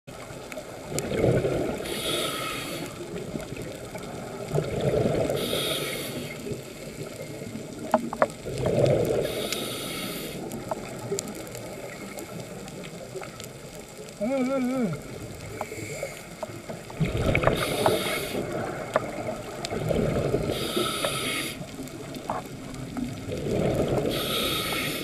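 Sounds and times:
rush of bubbles: 0.1 - 25.0
diver breathing through regulator: 1.4 - 3.2, 5.0 - 7.2, 8.7 - 10.6, 14.9 - 16.4, 17.3 - 18.9, 20.0 - 21.8, 23.5 - 25.0.

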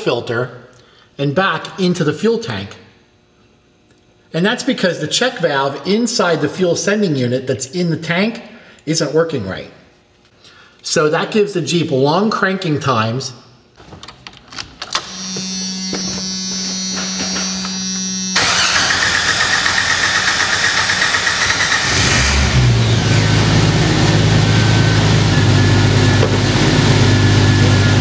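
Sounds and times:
fuel pump buzz: 14.9 - 28.0
starter motor cranking: 18.4 - 22.6
car engine running: 18.4 - 28.0.

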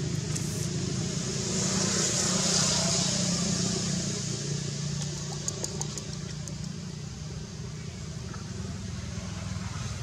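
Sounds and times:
vehicle engine running: 0.0 - 10.0.

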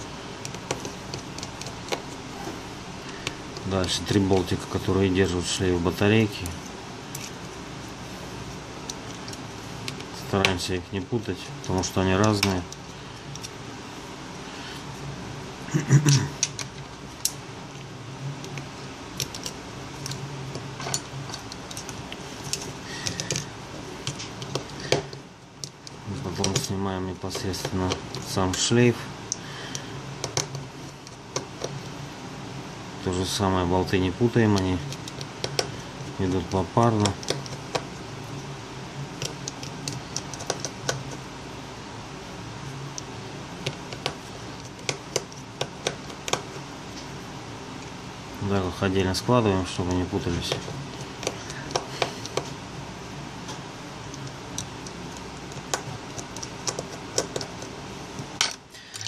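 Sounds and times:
steady low hum: 0.0 - 59.0
small tools clicking and tapping: 19.2 - 26.7, 39.2 - 41.2, 53.5 - 57.7.

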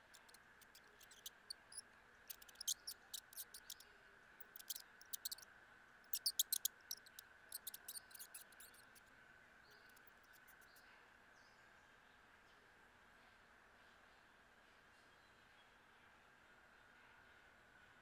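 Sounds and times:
mouse ticks and chirps: 0.0 - 10.9.

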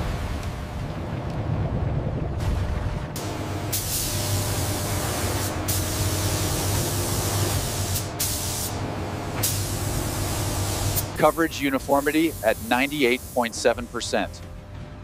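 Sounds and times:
steady low hum: 0.0 - 15.0
spray guns hissing: 3.3 - 14.4.

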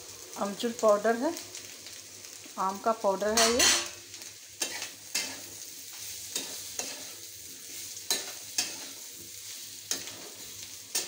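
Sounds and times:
potatoes sizzling in oil: 0.0 - 11.0
spatula scraping and knocking wok: 3.2 - 11.0.

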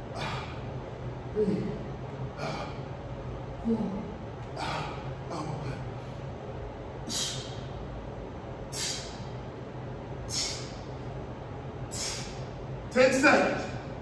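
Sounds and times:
man exhaling forcefully: 0.0 - 0.6, 4.6 - 5.1, 7.0 - 7.7, 8.7 - 9.3, 10.3 - 10.9, 11.9 - 12.4
steady low hum: 0.0 - 14.0.

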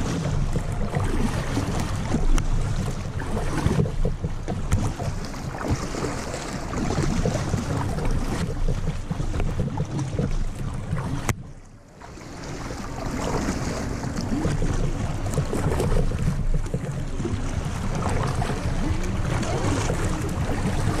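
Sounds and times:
water lapping at hull: 0.0 - 21.0
wind buffeting microphone: 0.0 - 21.0.

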